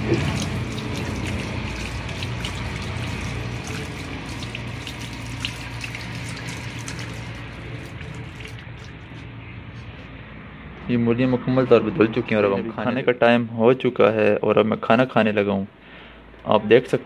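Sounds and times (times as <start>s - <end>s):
tap water splashing into sink: 0.0s - 9.0s.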